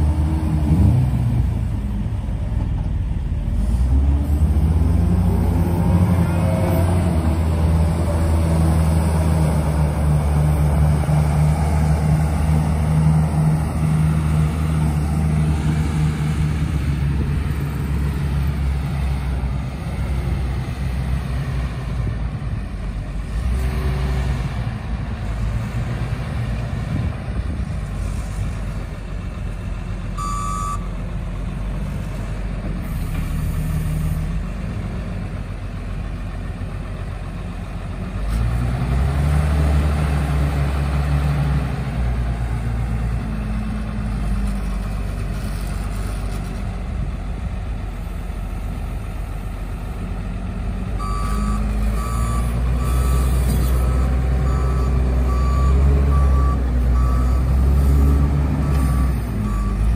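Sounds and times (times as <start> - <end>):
diesel engine running: 0.0 - 59.9
short high beep: 30.2 - 30.9.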